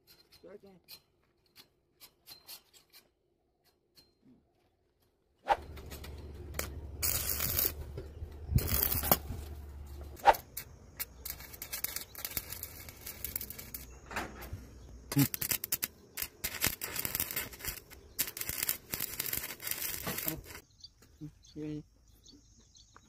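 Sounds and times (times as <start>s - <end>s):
arc welding crackling sizzle: 5.7s - 20.6s.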